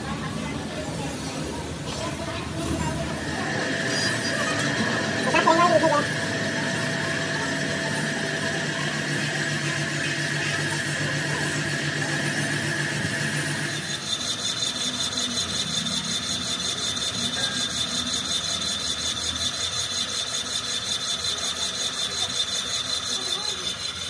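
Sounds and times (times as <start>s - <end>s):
machine hum: 2.4s - 24.0s
high steady whine: 3.0s - 18.2s
rapid rhythmic rasping: 3.1s - 24.0s.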